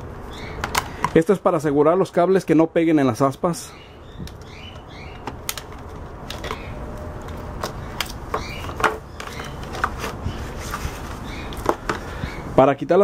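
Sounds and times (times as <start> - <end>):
clicks and taps of plastic parts: 0.6 - 1.2.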